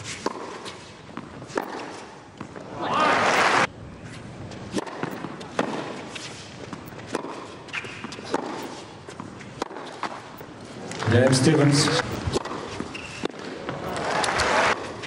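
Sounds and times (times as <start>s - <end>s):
racquet striking tennis ball: 0.0s - 2.7s, 4.7s - 6.1s, 6.7s - 10.5s, 12.1s - 13.8s
players' footsteps: 4.1s - 15.0s.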